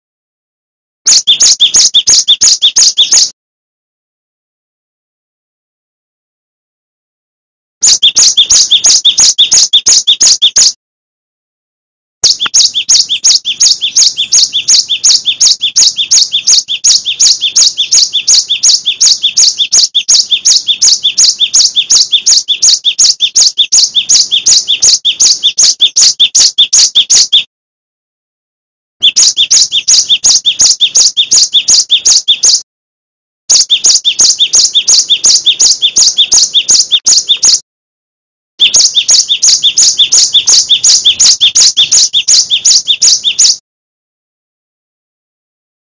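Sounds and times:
bird singing sharp high notes: 1.1 - 3.3, 7.8 - 10.8, 12.2 - 27.5, 29.0 - 32.6, 33.5 - 37.6, 38.6 - 43.6.

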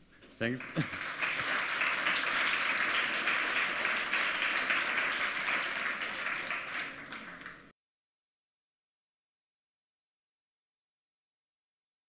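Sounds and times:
audience applauding: 0.4 - 7.7.

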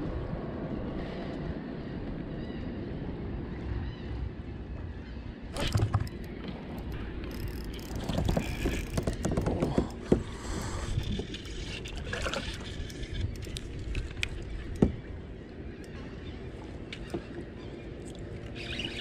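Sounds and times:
gear knocking against kayak: 5.6 - 10.4
water lapping against hull: 5.6 - 19.0.

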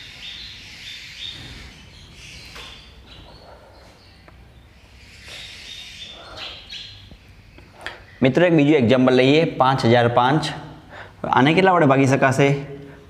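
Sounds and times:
marker squeaking on whiteboard: 0.0 - 8.3.

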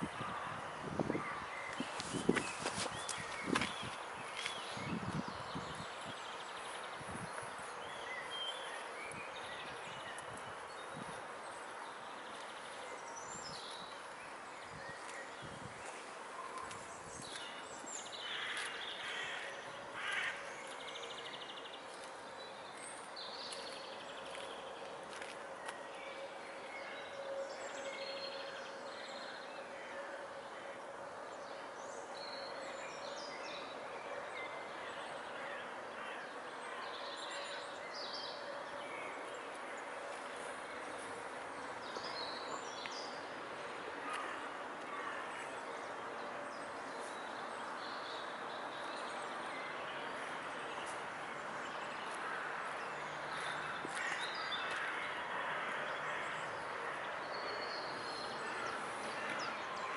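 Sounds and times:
background noise: 0.0 - 59.9.

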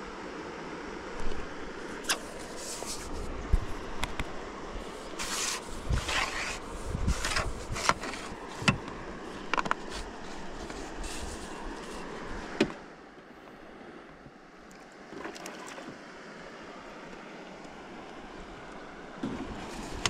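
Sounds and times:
knocks and scrapes in a boat: 2.0 - 3.8, 4.9 - 12.8, 19.2 - 20.0.

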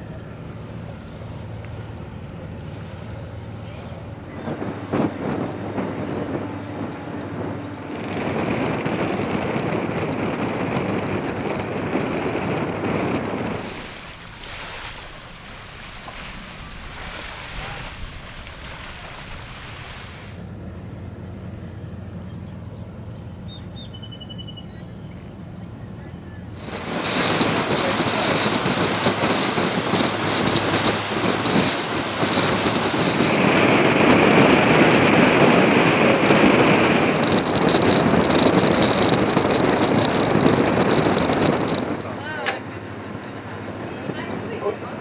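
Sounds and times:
wind buffeting microphone: 0.1 - 20.7, 25.6 - 45.0
bow wave hissing along hull: 12.8 - 20.5, 26.5 - 44.7.

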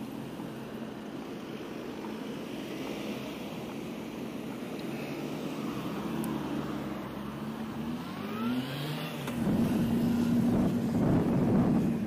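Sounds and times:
motor vehicle accelerating: 5.0 - 12.0
wind rumble on microphone: 9.3 - 12.0.

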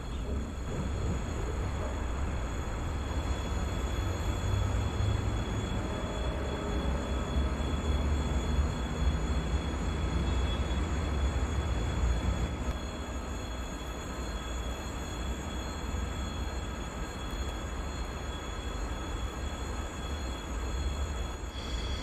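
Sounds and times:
wind buffeting microphone: 0.0 - 3.2
train rumbling: 0.0 - 22.0.

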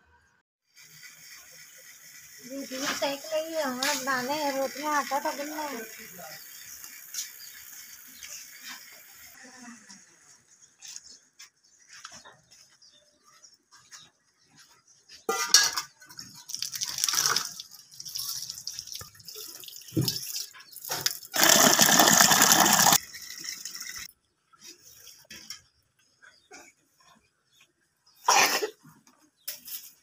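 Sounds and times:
water splashing on concrete: 16.5 - 23.0
tap water running into metal mug: 16.5 - 24.1.

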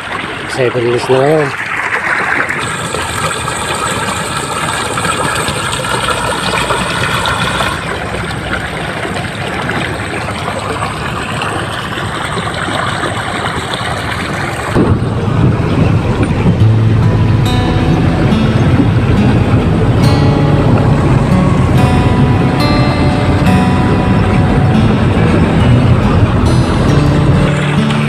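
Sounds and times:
pump engine running: 0.0 - 28.0
water flowing: 0.0 - 28.0
steady multi-tone whine: 14.4 - 28.0.

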